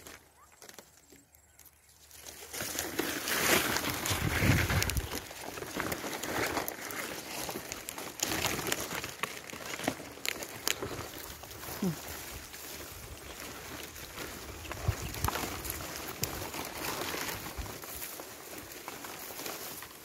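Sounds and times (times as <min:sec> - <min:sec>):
wind buffeting microphone: 0:04.0 - 0:05.2, 0:14.6 - 0:15.8.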